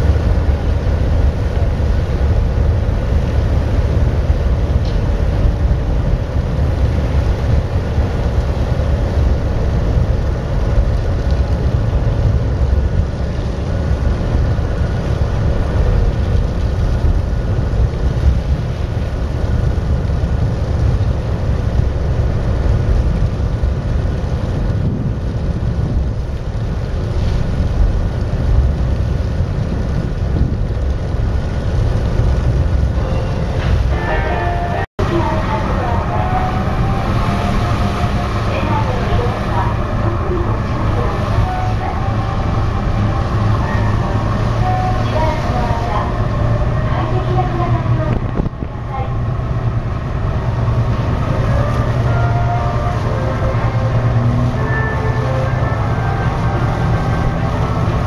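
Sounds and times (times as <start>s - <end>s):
ferry engine drone: 0.0s - 58.0s
wind buffeting microphone: 0.0s - 58.0s.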